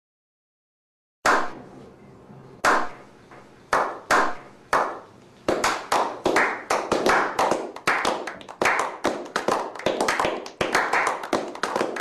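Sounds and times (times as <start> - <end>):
slow hand claps with echo: 2.6 - 3.0, 3.7 - 12.0.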